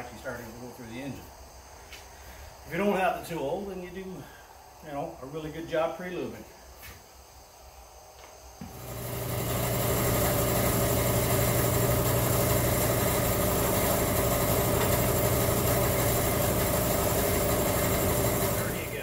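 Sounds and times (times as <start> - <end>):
machine motor humming: 8.6 - 19.0.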